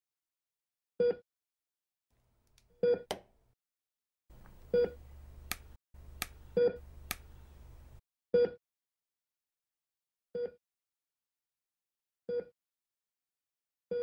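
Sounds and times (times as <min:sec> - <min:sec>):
patient monitor beeping: 0:04.7 - 0:05.0
sharp clicks: 0:05.4 - 0:06.4, 0:07.0 - 0:07.4.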